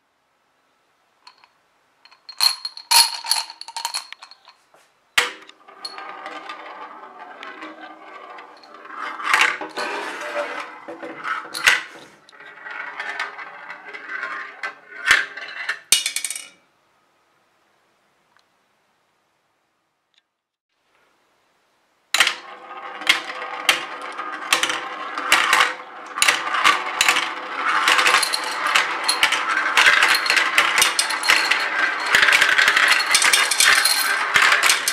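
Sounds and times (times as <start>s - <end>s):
marble clacking: 1.3s - 4.6s, 5.2s - 16.4s, 22.2s - 34.9s
rattle of clicks: 1.3s - 4.6s
marble rolling in plastic funnel: 5.3s - 15.7s, 22.2s - 34.9s.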